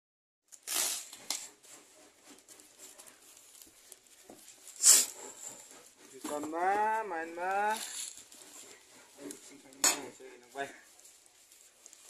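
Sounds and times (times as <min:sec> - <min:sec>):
plastic bag crinkling: 0:02.6 - 0:12.0.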